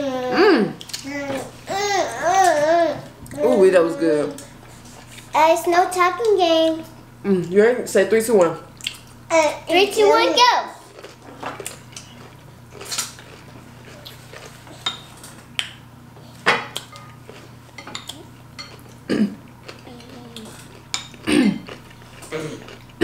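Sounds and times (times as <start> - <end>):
cutlery clinking on plates: 17.8 - 19.0.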